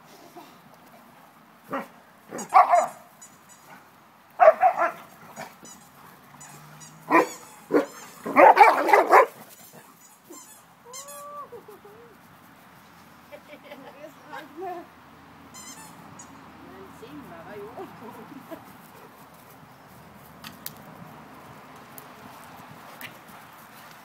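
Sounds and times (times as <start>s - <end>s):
dogs barking: 1.7s - 3.0s, 4.4s - 5.5s, 6.6s - 9.4s.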